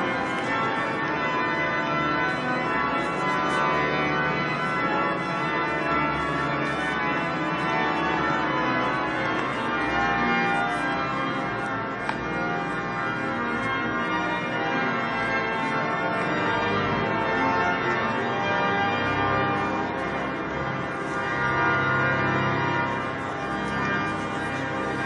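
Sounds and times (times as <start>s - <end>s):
church bells pealing: 0.0s - 25.0s
sustained organ-like tones: 0.0s - 25.0s.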